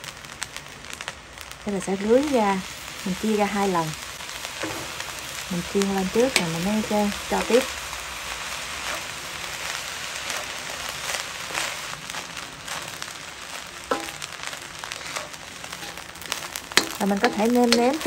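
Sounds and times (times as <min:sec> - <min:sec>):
rice sizzling in a pan: 0:00.0 - 0:18.0
spatula scraping and tapping pan: 0:04.6 - 0:05.0, 0:06.3 - 0:07.7, 0:13.9 - 0:14.3, 0:15.0 - 0:18.0.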